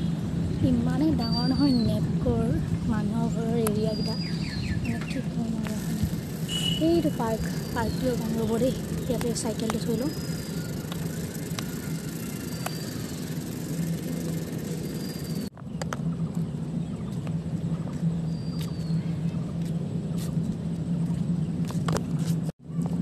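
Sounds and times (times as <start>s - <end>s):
high falling chirps: 5.9s - 15.5s.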